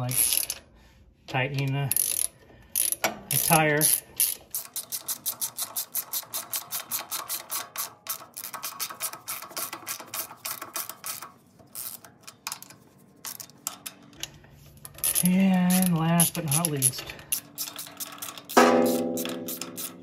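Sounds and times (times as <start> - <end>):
ratchet wrench clicking: 0.1 - 0.6, 1.9 - 20.0.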